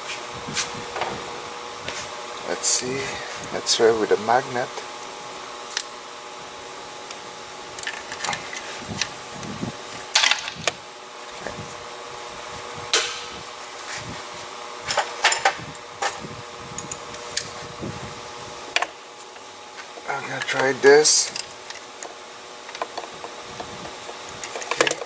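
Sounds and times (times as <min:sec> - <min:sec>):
steady mechanical hum: 0:00.0 - 0:25.0
hand tools clicking and clinking: 0:24.4 - 0:25.0.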